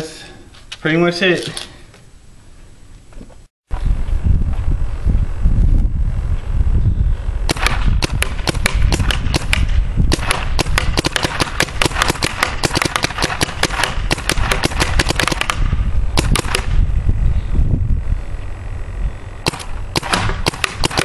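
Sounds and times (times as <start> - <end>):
paintball marker firing: 7.5 - 16.8, 19.4 - 21.0.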